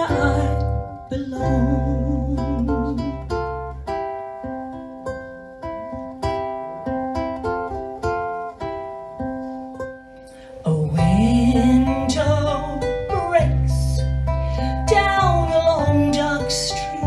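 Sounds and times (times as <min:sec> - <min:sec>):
woman singing: 0:00.0 - 0:03.7, 0:10.3 - 0:17.0
ukulele and guitar picking: 0:00.0 - 0:17.0.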